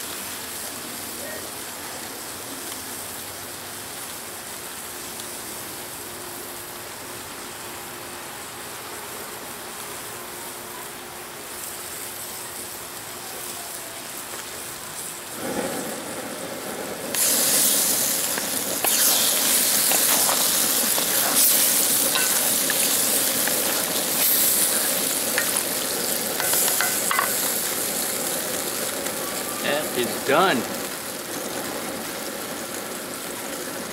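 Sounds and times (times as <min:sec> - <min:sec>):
food sizzling in a wok: 0:00.0 - 0:33.9
wooden spatula scraping food: 0:18.2 - 0:25.6.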